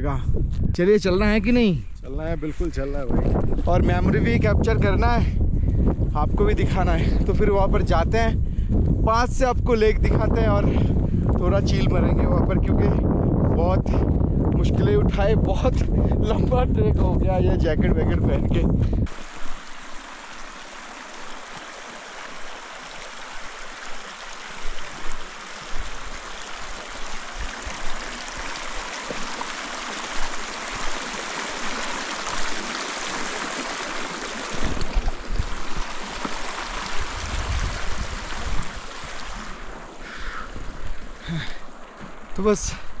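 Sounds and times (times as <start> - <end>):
wind buffeting microphone: 0.0 - 20.1, 23.7 - 32.7, 34.0 - 43.0
flowing water rushing: 19.1 - 43.0.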